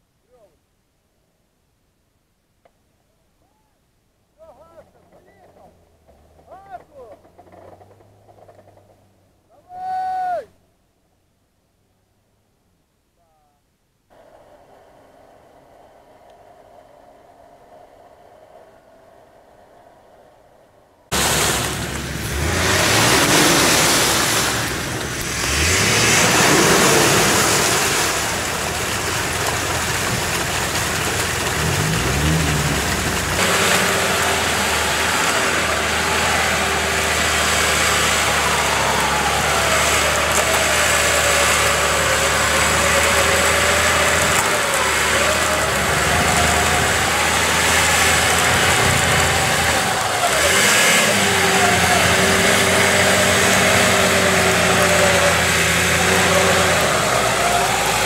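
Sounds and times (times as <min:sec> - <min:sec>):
engine revving in mud: 0:05.0 - 0:09.1, 0:21.1 - 0:58.0
whining tone: 0:21.1 - 0:58.0.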